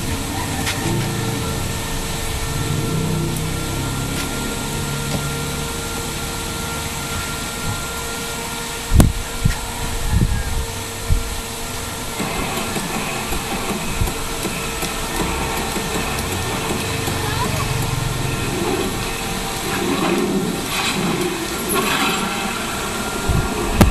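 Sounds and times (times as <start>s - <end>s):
steady background hum: 0.0s - 23.9s.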